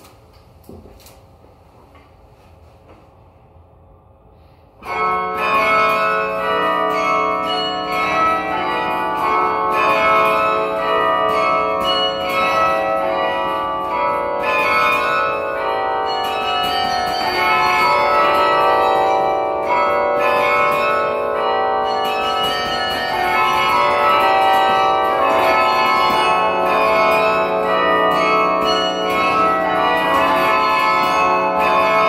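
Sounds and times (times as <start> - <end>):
carillon bells playing: 4.8 - 32.0.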